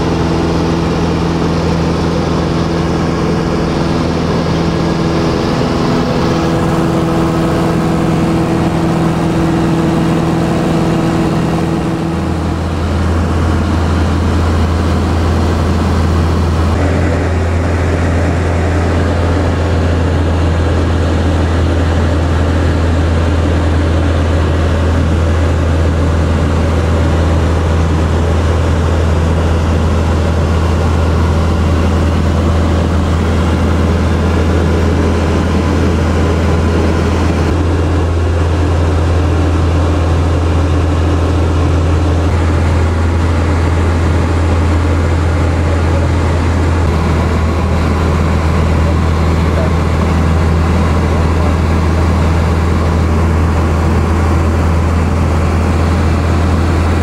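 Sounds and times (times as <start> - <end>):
light aircraft engine drone in cabin: 0.0 - 57.0.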